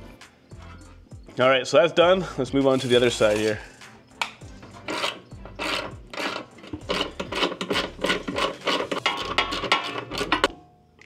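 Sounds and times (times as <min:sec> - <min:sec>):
metal scraping and clanking: 0:02.6 - 0:03.8, 0:04.4 - 0:10.7.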